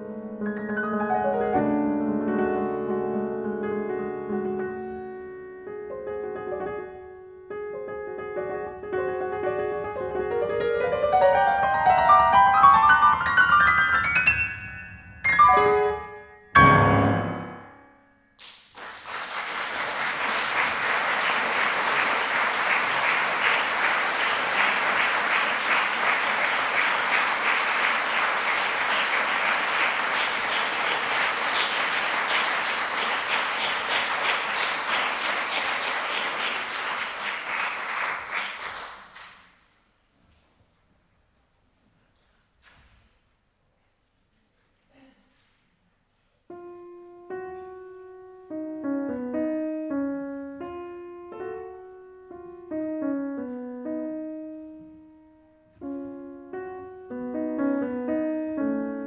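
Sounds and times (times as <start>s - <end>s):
grand piano playing: 0.0s - 18.4s, 20.3s - 37.8s, 46.5s - 59.0s
audience applause: 18.4s - 39.5s.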